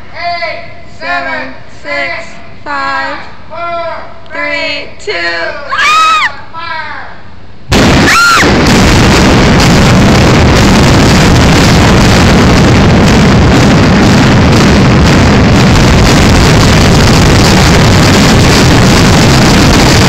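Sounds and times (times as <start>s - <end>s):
demolition blast: 7.7s - 20.0s
heavy rumble: 7.7s - 20.0s.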